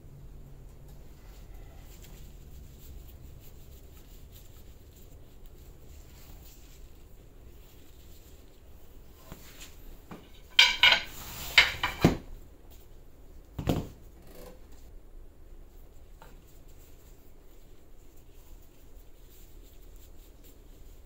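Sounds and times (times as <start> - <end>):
wooden cues knocking and clinking: 10.1 - 12.2.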